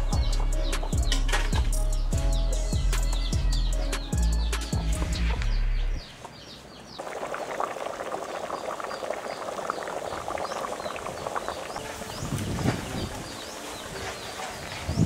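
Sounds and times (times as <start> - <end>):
music track: 0.0 - 6.0, 11.8 - 15.0
birds chirping: 0.0 - 15.0
soup bubbling at a boil: 7.0 - 11.8.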